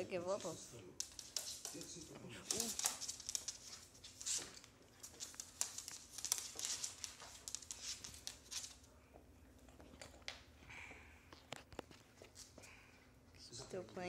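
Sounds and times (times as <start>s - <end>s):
dog claws scrabbling on wooden floor: 0.4s - 8.9s.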